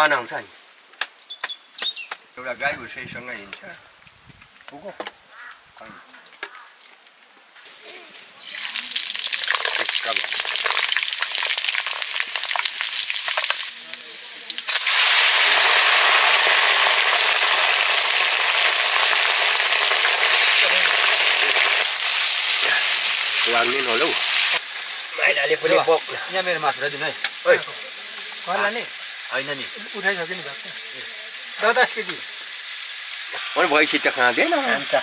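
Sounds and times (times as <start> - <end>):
hot oil crackling: 0.1 - 35.0
meat sizzling in oil: 7.7 - 35.0.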